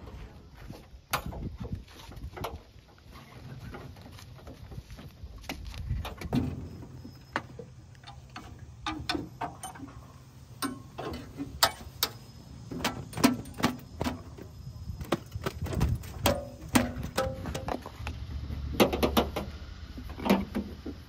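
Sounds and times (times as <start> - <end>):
clicks and knocks on metal panels: 7.3 - 10.0, 10.6 - 18.0, 18.7 - 21.0.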